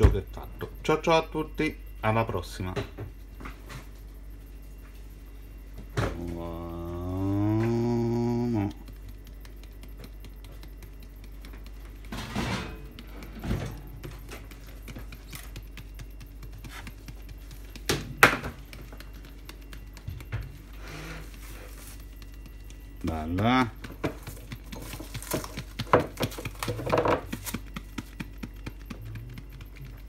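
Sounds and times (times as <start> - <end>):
plastic package shaken and tapped: 8.8 - 12.2, 12.8 - 30.0.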